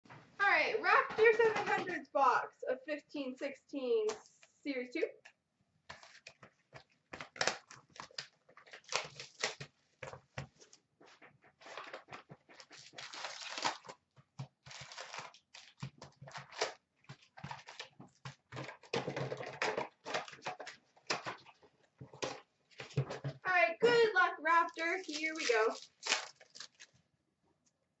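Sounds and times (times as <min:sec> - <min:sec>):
card packs torn open: 0:05.9 - 0:10.2, 0:11.6 - 0:21.6, 0:24.7 - 0:27.0
plastic wrap crinkling: 0:05.9 - 0:23.2, 0:23.8 - 0:27.0.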